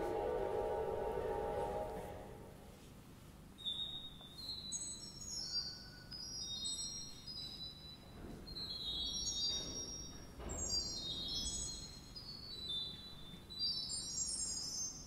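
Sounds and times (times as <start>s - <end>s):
pipe organ high sustained notes: 0.0s - 2.7s.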